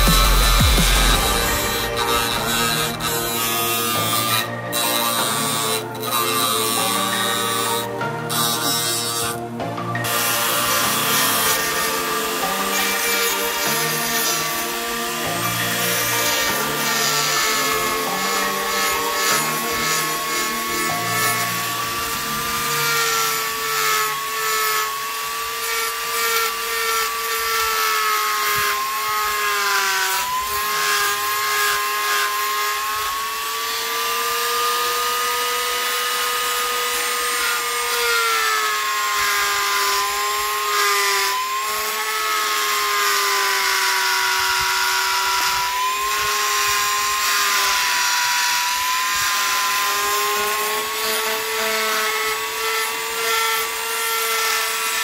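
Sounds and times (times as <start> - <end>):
bit grinding carbon fiber: 0.0 - 9.4
rotary tool whining: 0.0 - 55.0.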